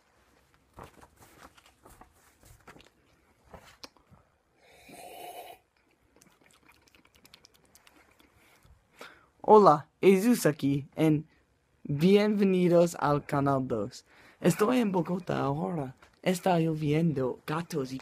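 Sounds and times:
slurp from mug: 4.6s - 8.4s.

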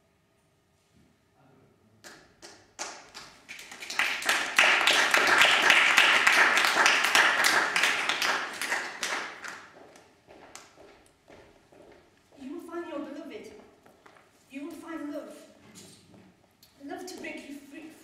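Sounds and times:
audience applauding: 2.8s - 9.8s.

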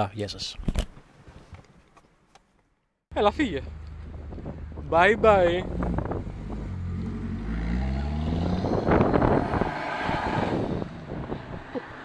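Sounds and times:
road noise: 3.1s - 12.0s
car engine pulling away: 5.6s - 12.0s.

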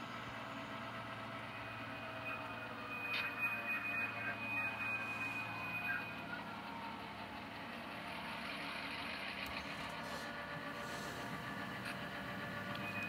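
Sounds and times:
model train low hum: 0.0s - 13.0s
high-pitched whine: 0.1s - 7.7s.

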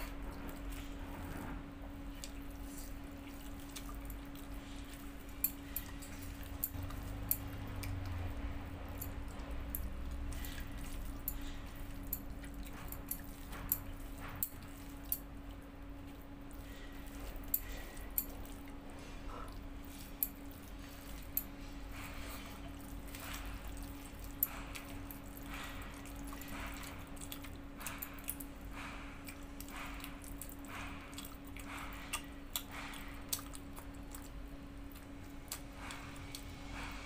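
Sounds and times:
person chewing: 0.0s - 37.0s
steady low hum: 0.0s - 37.0s
wet mouth clicks: 30.4s - 34.4s.

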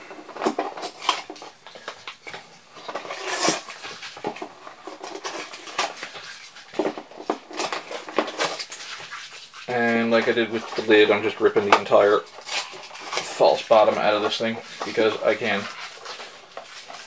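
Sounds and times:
cardboard tearing: 2.8s - 4.4s, 12.0s - 17.0s.

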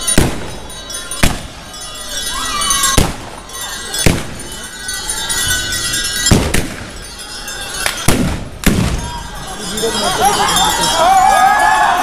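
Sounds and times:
blank gunshots with echo: 8.0s - 9.1s.

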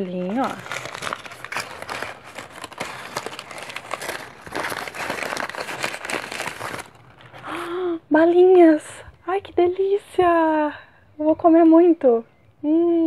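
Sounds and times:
paper wrapping crinkling: 0.0s - 8.0s.

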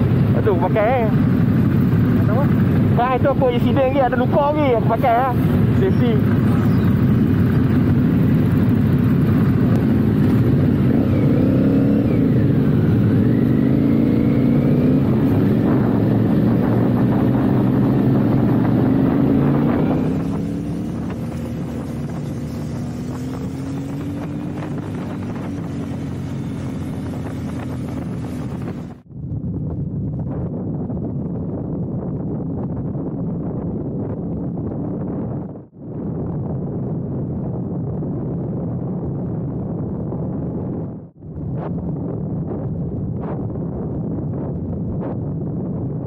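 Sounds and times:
motorcycle engine droning: 0.0s - 30.1s.

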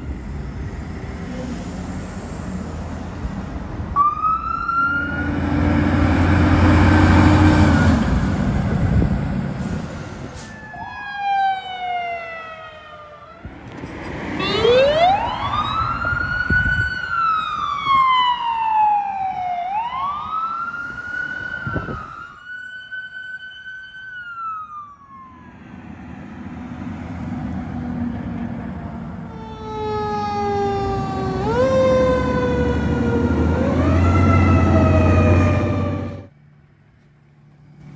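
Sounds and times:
sirens wailing: 3.9s - 9.1s, 10.2s - 36.3s
vehicle engine rumbling past: 4.7s - 10.5s, 25.4s - 36.3s.

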